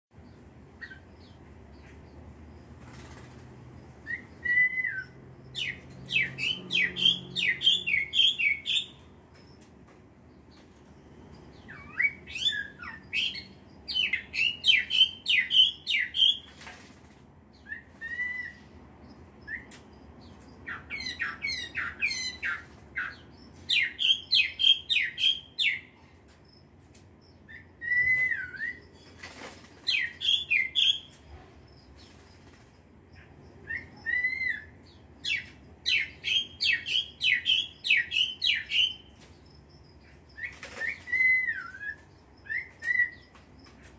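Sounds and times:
songbird chirping: 0.1 - 43.9
wing flapping: 2.7 - 3.6, 29.1 - 30.2, 40.4 - 41.4.

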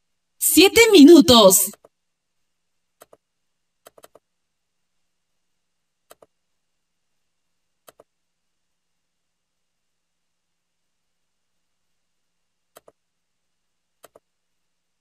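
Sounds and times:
computer mouse clicks: 3.0 - 3.2, 3.8 - 4.2, 6.1 - 6.4, 7.8 - 8.1, 12.7 - 13.0, 14.0 - 14.3.

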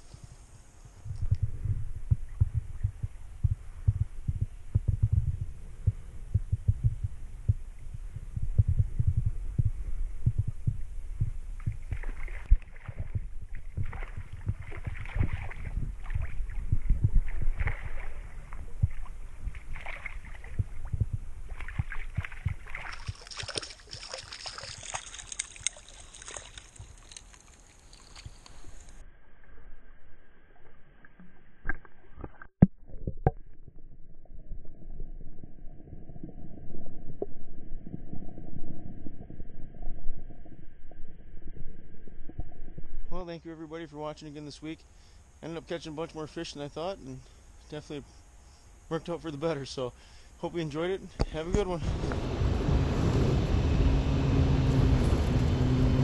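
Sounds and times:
low thumping and rumble: 1.0 - 22.7, 51.2 - 56.0
fish splashing in water: 11.6 - 29.0.

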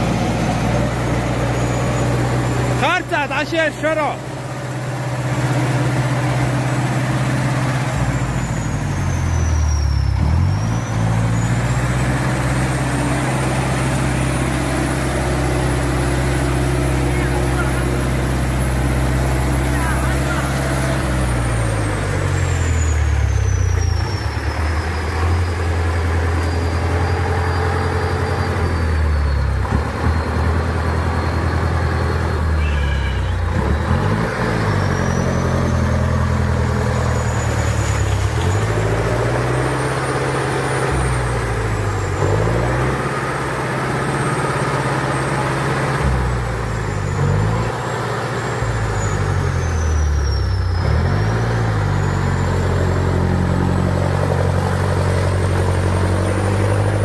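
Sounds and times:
truck engine labouring: 0.0 - 57.0.

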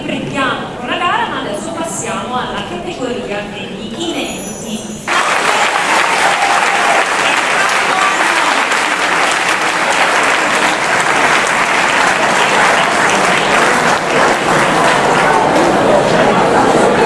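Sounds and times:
audience applauding: 5.1 - 17.0.

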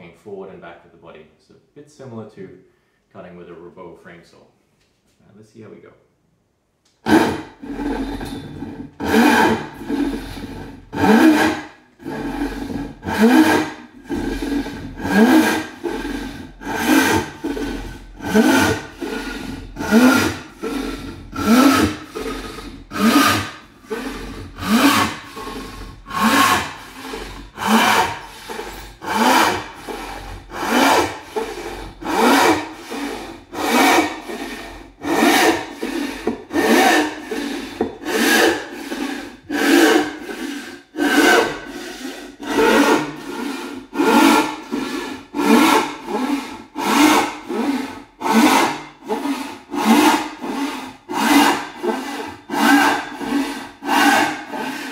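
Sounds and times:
hand saw rasping through wood: 6.9 - 54.9.

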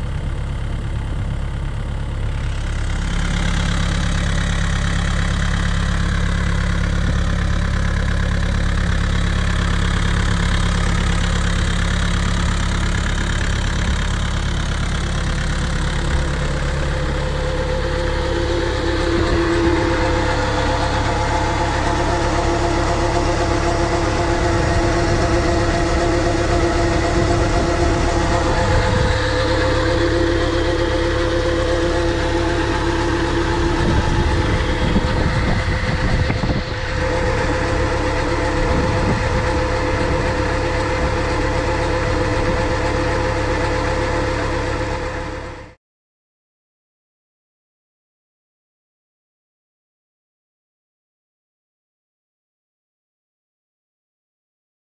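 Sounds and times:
diesel engine running steadily: 0.0 - 45.8
steady whine: 2.2 - 45.8.

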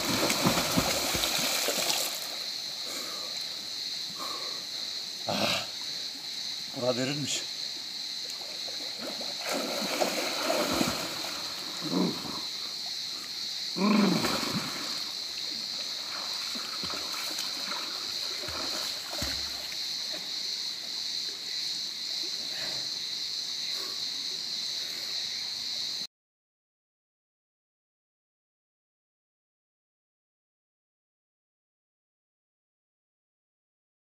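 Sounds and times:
swimmer splashing water: 0.0 - 2.5, 8.7 - 12.3, 14.0 - 19.8
flowing water hiss: 0.0 - 25.4.

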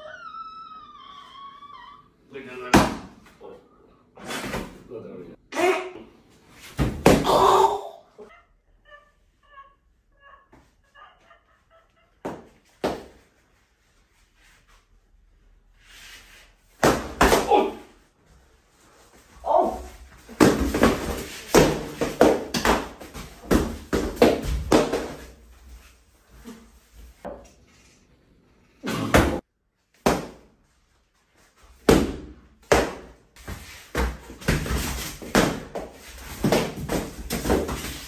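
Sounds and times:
foam noodles smacking people: 19.6 - 25.3.

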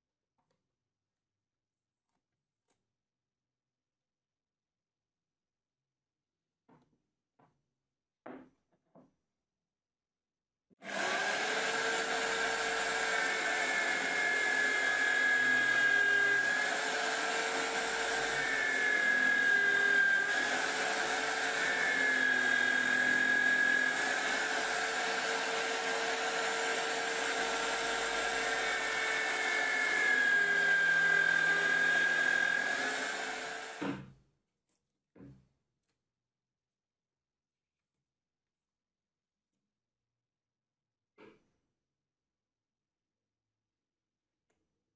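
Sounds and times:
drill press drilling wood: 10.8 - 34.1.

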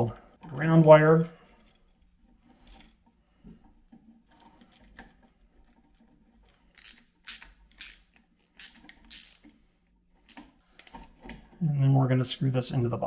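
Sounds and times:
screwdriver clicks and scraping: 3.9 - 9.6, 10.2 - 11.5.

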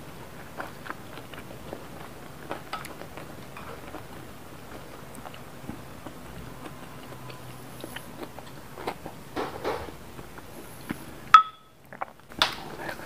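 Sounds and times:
chewing and mouth clicks: 0.3 - 9.2, 11.8 - 13.0.

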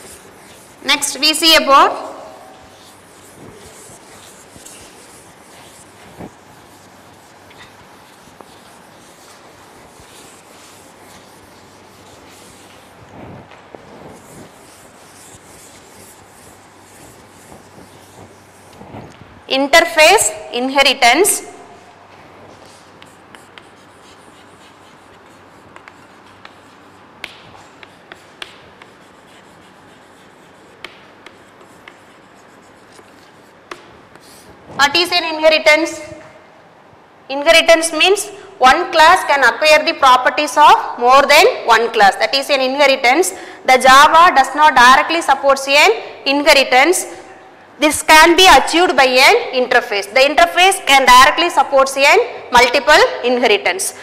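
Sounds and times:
duster rubbing chalkboard: 0.0 - 1.7, 2.4 - 19.3, 22.6 - 34.8.

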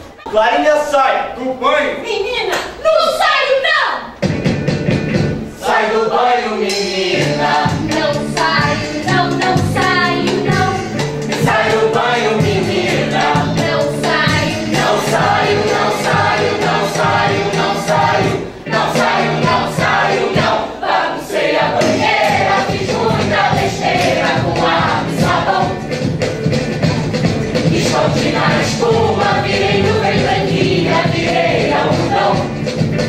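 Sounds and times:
live band playing: 4.1 - 5.6, 6.2 - 20.8, 21.7 - 33.0
chorus singing: 5.4 - 33.0.

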